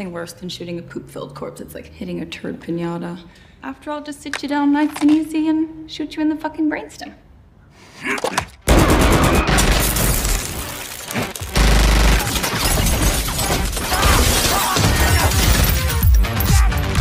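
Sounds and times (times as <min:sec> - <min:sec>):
rapid gunfire: 0:08.7 - 0:09.9, 0:11.4 - 0:15.5
glass shattering: 0:09.6 - 0:16.5
film music: 0:15.1 - 0:17.0.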